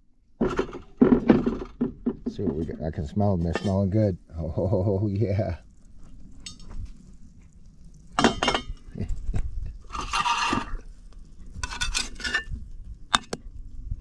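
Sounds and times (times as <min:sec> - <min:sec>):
metal spatula scraping a bowl: 0:03.4 - 0:03.8, 0:09.9 - 0:10.8, 0:11.6 - 0:12.6.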